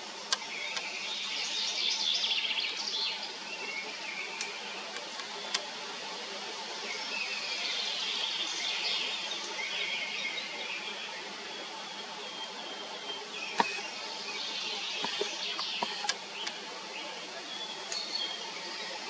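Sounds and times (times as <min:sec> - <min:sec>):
steady outdoor hiss: 0:00.0 - 0:19.0
small birds twittering: 0:00.1 - 0:05.9, 0:06.5 - 0:19.0
sharp clicks: 0:00.3 - 0:00.9, 0:13.6 - 0:13.9, 0:15.0 - 0:16.6.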